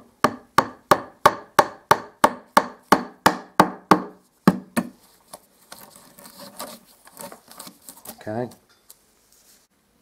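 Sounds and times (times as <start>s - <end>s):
hammer tapping wood: 0.2s - 4.9s.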